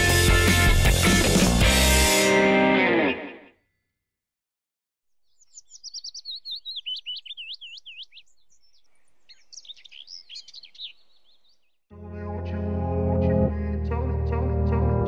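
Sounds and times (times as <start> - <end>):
songbird singing: 5.1 - 11.9.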